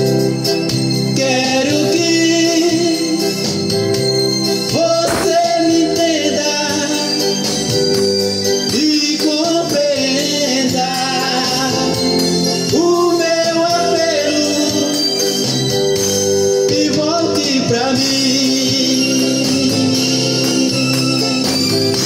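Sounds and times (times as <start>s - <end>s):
man singing into a microphone: 1.1s - 3.6s, 4.7s - 7.8s, 8.6s - 15.5s, 16.5s - 21.4s
backing music: 1.2s - 22.0s.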